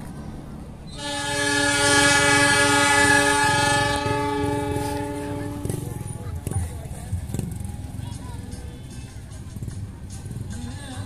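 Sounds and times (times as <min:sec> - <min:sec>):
locomotive air horn blast: 0:00.9 - 0:06.2.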